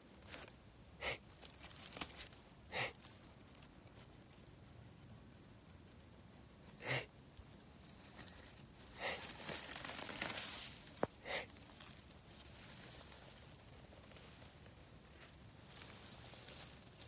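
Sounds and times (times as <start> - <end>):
rustle of dry leaves and grass: 0.0 - 17.0
short breathy huffs: 8.9 - 9.4, 11.0 - 11.6.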